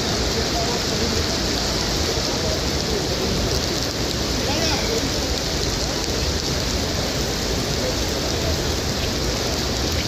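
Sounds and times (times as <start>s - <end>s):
rain falling on stone paving: 0.0s - 10.0s.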